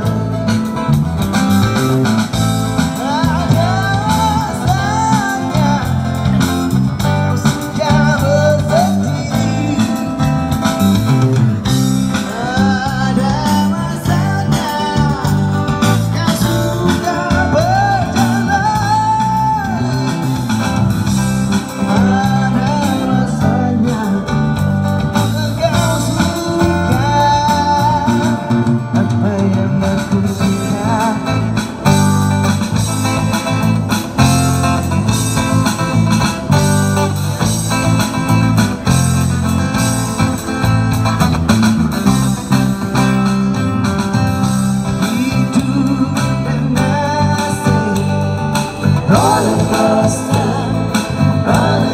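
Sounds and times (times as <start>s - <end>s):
amplified guitar: 0.0s - 51.9s
person singing: 2.9s - 6.7s, 7.3s - 10.4s, 12.1s - 20.5s, 21.5s - 31.7s, 44.9s - 51.9s.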